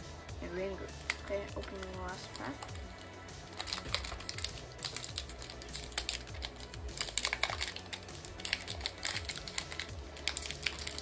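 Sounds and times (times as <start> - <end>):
foil wrapper tearing and crinkling: 1.0 - 11.0.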